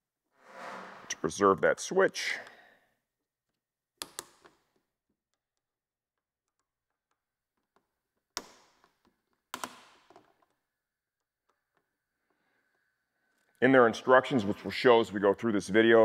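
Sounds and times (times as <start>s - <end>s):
hand tool clicks and taps: 4.0s - 4.6s.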